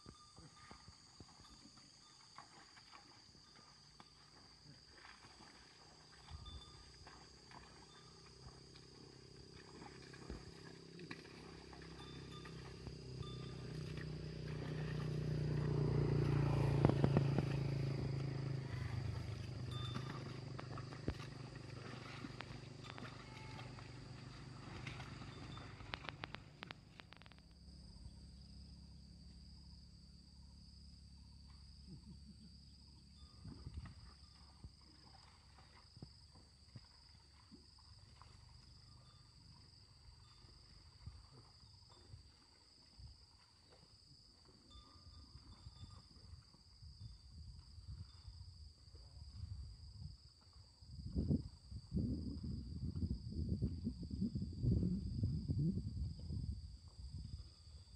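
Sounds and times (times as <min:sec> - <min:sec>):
high-pitched insect drone: 0:00.0 - 0:35.8
faint clicks: 0:25.8 - 0:27.5.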